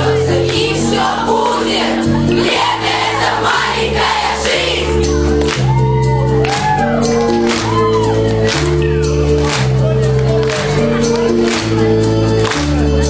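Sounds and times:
children singing together: 0.0 - 5.1
backing track with bass and chords: 0.0 - 13.0
shouts and whoops: 5.6 - 8.3.

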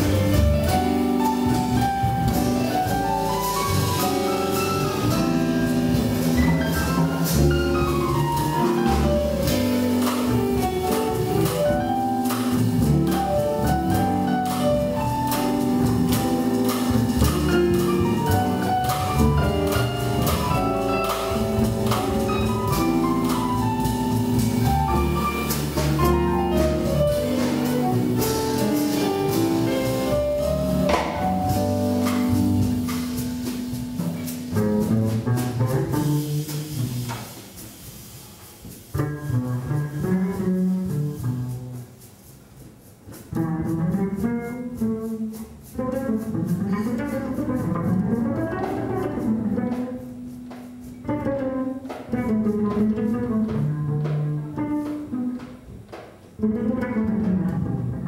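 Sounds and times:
upright bass: 0.0 - 37.5, 38.9 - 42.0, 43.1 - 58.0
drum kit cymbals: 0.0 - 56.3
jazz piano solo: 0.0 - 58.0.

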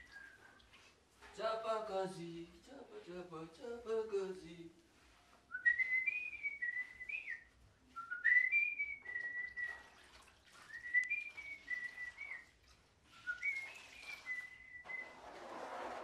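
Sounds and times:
wet floor cloth swishing: 0.0 - 1.4, 4.7 - 16.0
person whistling a tune: 5.5 - 9.8, 10.7 - 12.5, 13.2 - 15.1.

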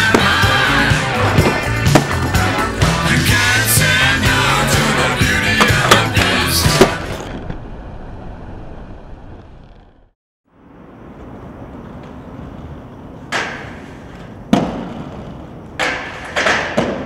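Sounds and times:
skates clacking: 0.0 - 7.3, 11.8 - 17.0
skate wheels rolling on concrete: 3.8 - 17.0.

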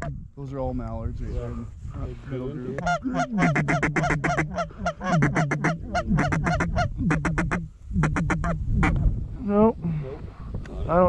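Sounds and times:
duck calls reedy notes: 2.8 - 8.9.

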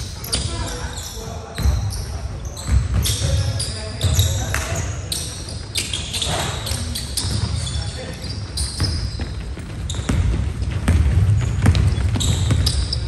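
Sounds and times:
sneakers squeaking: 0.0 - 13.0
basketball bouncing on wooden floor: 8.6 - 13.0.

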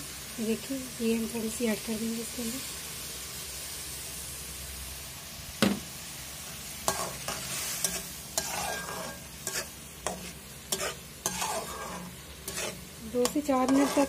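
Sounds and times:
food sizzling in a pot: 0.0 - 14.0
metal spatula scraping pot: 6.9 - 14.0.

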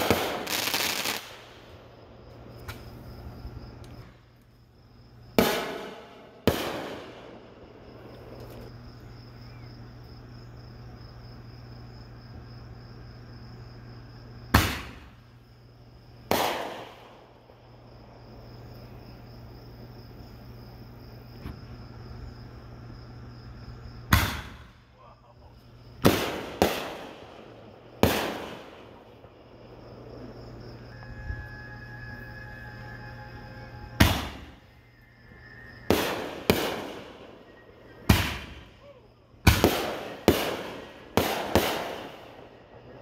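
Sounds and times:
fireworks bangs echoing: 0.0 - 2.0, 5.3 - 8.6, 14.5 - 15.3, 16.2 - 17.5, 24.0 - 24.9, 26.0 - 30.3, 34.0 - 34.7, 35.8 - 42.8
insects chirping: 0.0 - 43.0.

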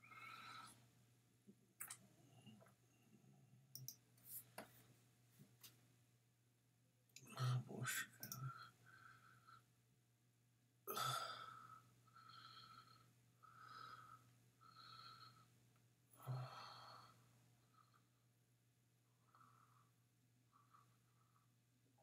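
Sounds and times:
faint breathing: 8.2 - 9.7, 10.9 - 18.2.

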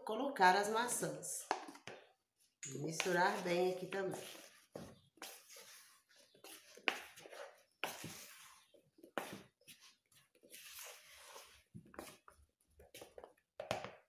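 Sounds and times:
spatula stirring in a bowl: 2.8 - 13.3.

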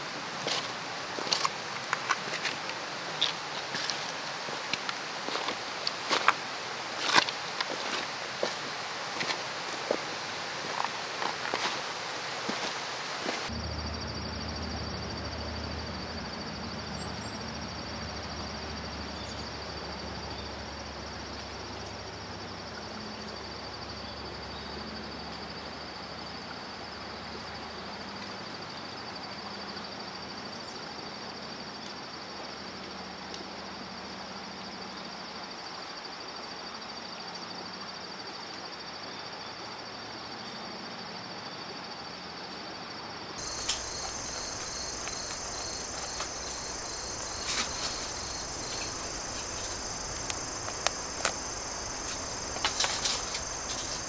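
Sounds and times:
outdoor hiss: 0.0 - 14.6, 43.4 - 54.0
insects chirring: 0.0 - 54.0
low rumble: 13.5 - 16.7.

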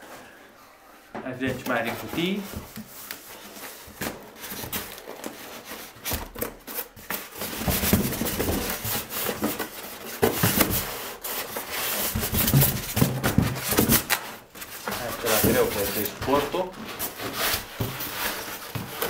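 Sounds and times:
styrofoam scraping cardboard box: 1.7 - 19.0.

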